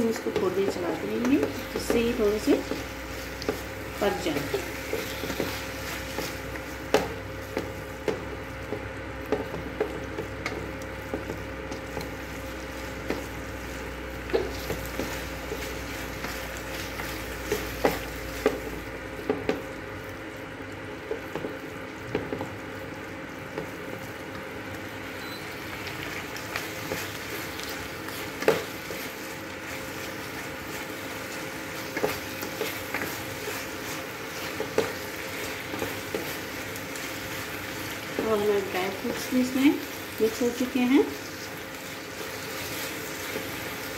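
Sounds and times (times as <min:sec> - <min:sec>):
wooden spatula scraping pan: 0:00.0 - 0:08.2, 0:26.5 - 0:39.6
food sizzling in a pan: 0:00.0 - 0:43.9.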